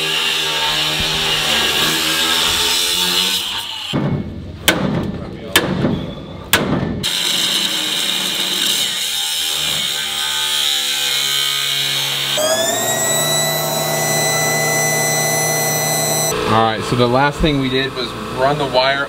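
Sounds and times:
angle grinder cutting steel: 8.8s - 16.3s
steady whine of even tones: 12.4s - 16.3s.

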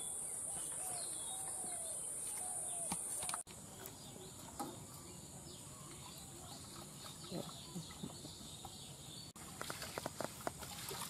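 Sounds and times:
bird chirps: 0.0s - 9.4s.

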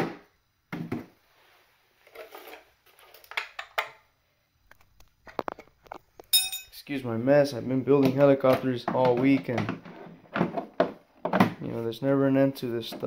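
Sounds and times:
plastic parts clicking and knocking: 4.7s - 6.3s, 8.0s - 11.6s.

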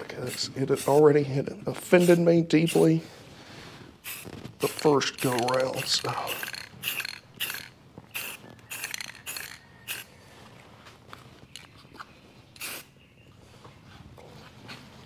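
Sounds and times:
spray paint can hissing: 2.0s - 2.9s, 4.0s - 10.1s, 12.6s - 12.9s.

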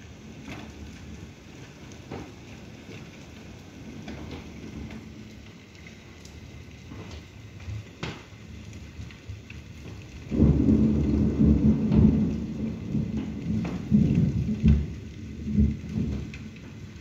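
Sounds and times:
steady rain: 0.0s - 17.0s
thunder rumbling: 9.2s - 17.0s.

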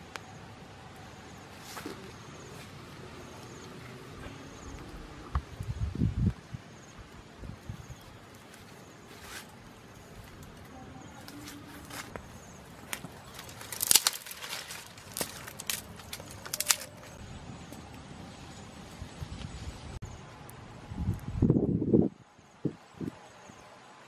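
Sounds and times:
wood fire crackling and popping: 6.2s - 17.2s.

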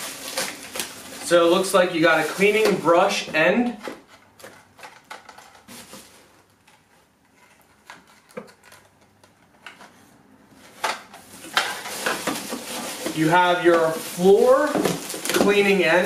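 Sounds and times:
plastic bags crinkling: 0.0s - 6.6s, 11.2s - 16.0s
plastic parts clicking and knocking: 3.7s - 5.7s, 6.6s - 10.0s.

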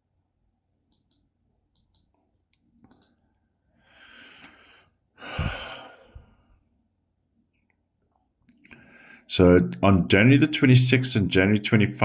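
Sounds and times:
computer mouse clicks: 0.9s - 3.4s
man sighing into microphone: 5.2s - 6.4s.

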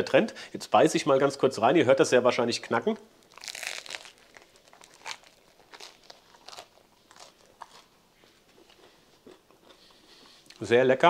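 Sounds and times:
bread crust crunching: 3.2s - 7.9s.

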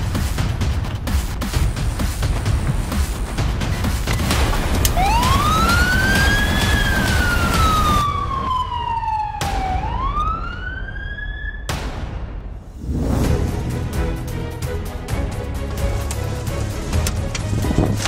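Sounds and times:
ambulance siren wailing: 4.6s - 11.7s.

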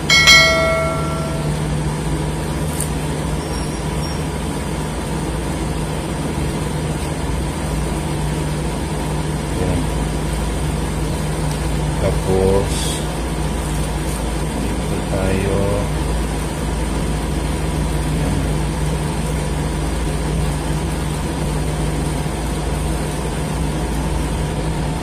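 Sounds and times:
short ringing chime: 0.0s - 1.8s
low mechanical hum and rumble: 0.0s - 25.0s.

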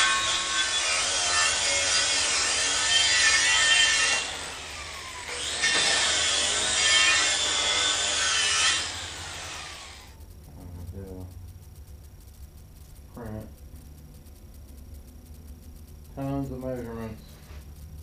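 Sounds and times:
angle grinder grinding steel: 0.0s - 10.1s.

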